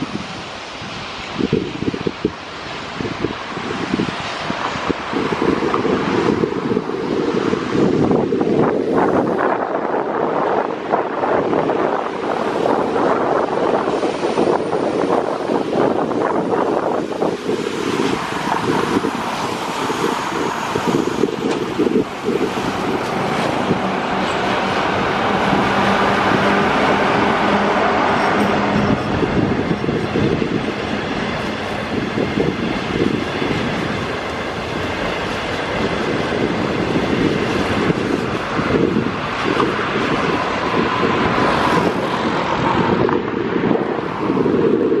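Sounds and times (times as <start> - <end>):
train wheels clattering on rails: 16.7 - 44.4.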